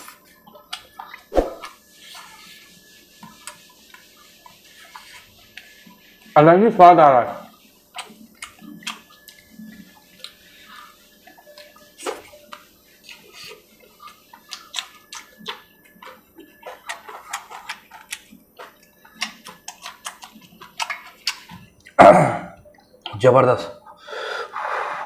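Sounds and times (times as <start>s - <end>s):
wet chewing and lip smacks: 7.9s - 10.4s, 11.3s - 22.0s.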